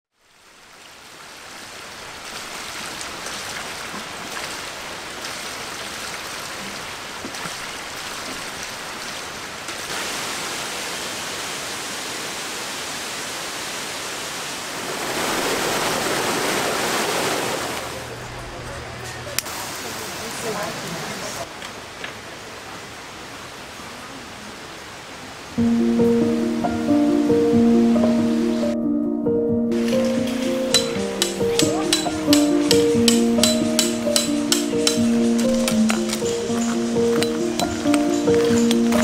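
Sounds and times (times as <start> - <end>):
stream water flowing: 0.1 - 28.8, 29.6 - 39.0.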